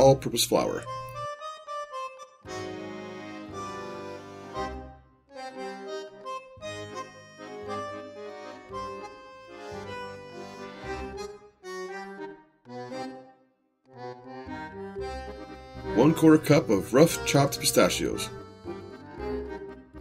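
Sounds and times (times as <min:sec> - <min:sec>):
bandoneon melody: 0:00.0 - 0:20.0
bass line: 0:14.2 - 0:20.0.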